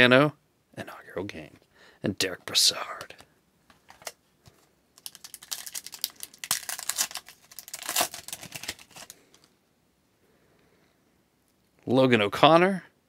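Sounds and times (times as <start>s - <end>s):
foil wrapper crinkling and tearing: 5.0s - 9.5s.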